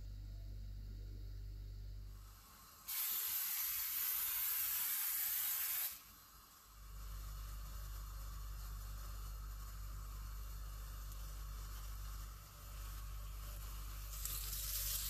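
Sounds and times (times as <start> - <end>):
oil spray hissing: 2.8 - 6.1.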